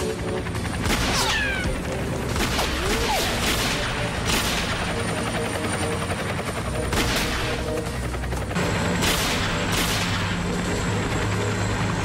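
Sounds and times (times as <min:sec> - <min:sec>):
helicopter rotor and engine: 0:00.0 - 0:12.0
gunfire bursts: 0:02.3 - 0:05.0.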